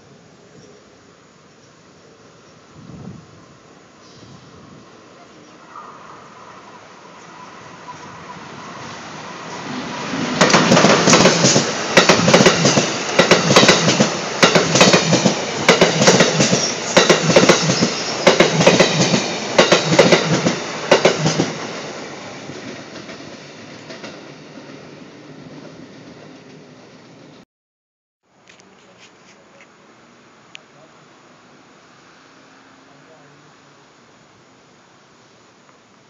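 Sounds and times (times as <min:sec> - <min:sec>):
train passing at speed: 0:02.0 - 0:27.4, 0:29.8 - 0:35.5
wheels clacking over rail joints: 0:10.3 - 0:21.6.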